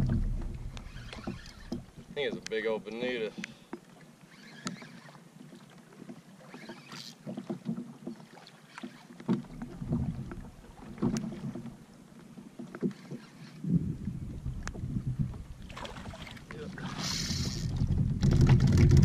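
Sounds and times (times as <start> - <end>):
wind on microphone: 0.0 - 2.0, 13.6 - 19.0
waves slapping against hull: 0.0 - 19.0.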